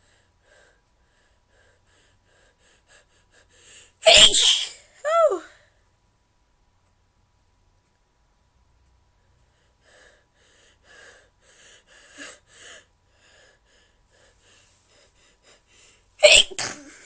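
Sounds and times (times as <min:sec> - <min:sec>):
woman gasping breaths: 0:00.0 - 0:04.0, 0:09.6 - 0:16.2.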